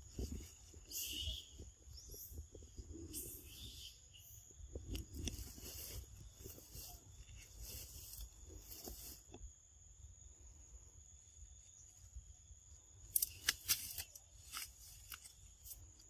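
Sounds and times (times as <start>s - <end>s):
high insect trill: 0.0s - 16.0s
crackling of stems snapping: 13.1s - 16.0s.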